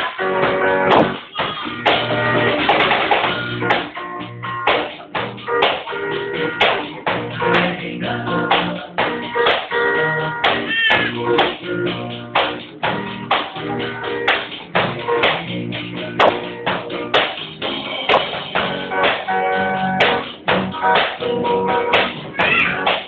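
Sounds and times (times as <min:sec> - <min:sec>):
drums: 0:00.0 - 0:23.0
electric guitar: 0:00.0 - 0:23.0
man singing into a microphone: 0:06.9 - 0:11.4.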